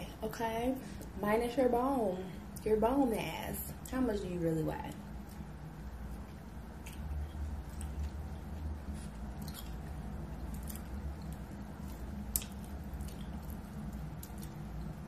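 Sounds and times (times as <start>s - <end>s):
steady low hum: 0.0s - 15.0s
chewing with wet mouth clicks: 6.2s - 15.0s.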